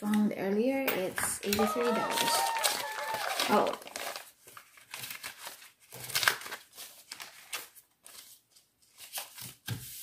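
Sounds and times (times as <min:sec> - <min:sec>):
paper money rustling: 0:01.5 - 0:10.0.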